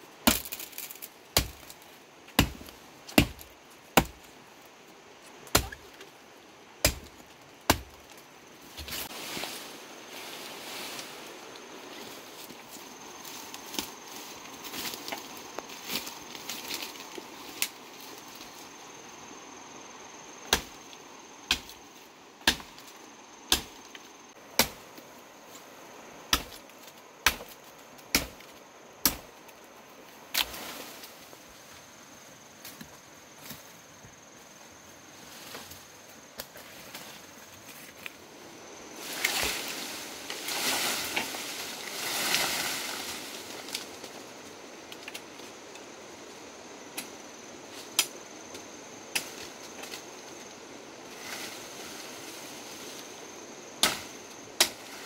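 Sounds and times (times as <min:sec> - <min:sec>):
machete chopping bamboo: 0:00.2 - 0:04.3, 0:05.5 - 0:06.0, 0:06.8 - 0:08.0, 0:20.5 - 0:20.8, 0:21.5 - 0:21.8, 0:22.4 - 0:22.8, 0:23.5 - 0:23.8, 0:24.5 - 0:24.9, 0:26.3 - 0:26.6, 0:27.2 - 0:29.3, 0:53.8 - 0:54.9.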